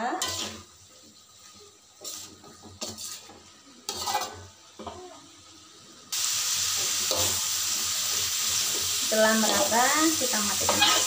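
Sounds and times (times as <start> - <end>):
wooden spatula scraping a wok: 0.0 - 4.4, 8.5 - 11.0.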